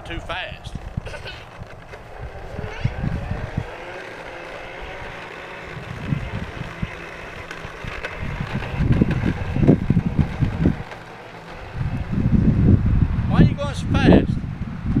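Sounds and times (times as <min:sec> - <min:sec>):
wind buffeting microphone: 0:00.0 - 0:15.0
toy motor whirring: 0:00.6 - 0:12.4.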